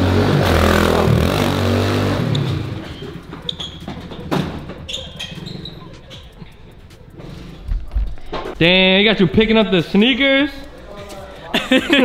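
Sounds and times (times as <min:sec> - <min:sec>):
dirt bike engine running: 0:00.0 - 0:04.9
faint high squeaks: 0:02.3 - 0:07.6.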